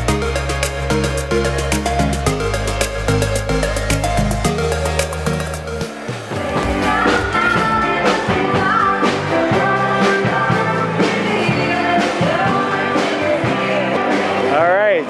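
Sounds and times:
drums: 0.0s - 15.0s
person singing: 6.3s - 14.5s.

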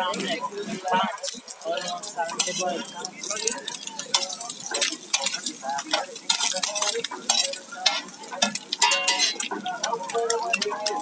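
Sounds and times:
oil sizzling: 0.0s - 11.0s
spatula scraping on griddle: 1.8s - 9.7s.

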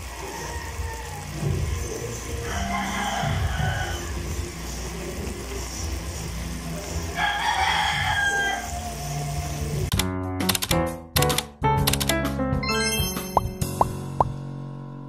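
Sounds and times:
rooster crowing: 0.0s - 1.5s, 2.1s - 4.4s, 7.1s - 9.3s
music: 0.0s - 15.0s.

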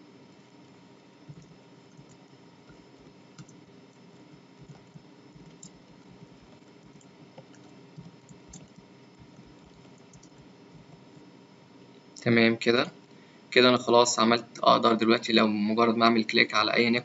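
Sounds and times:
faint steady hum: 0.0s - 17.0s
keyboard typing: 1.3s - 11.0s.

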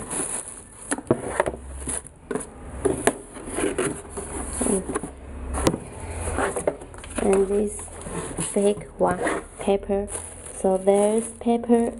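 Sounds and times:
tissue paper rustling: 0.0s - 2.1s, 7.4s - 11.9s
cardboard box being handled: 0.0s - 11.9s.

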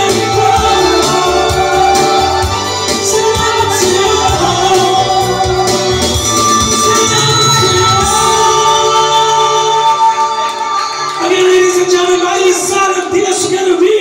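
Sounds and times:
backing track with bass beat: 0.0s - 9.8s
woman and man singing duet: 0.0s - 11.0s.

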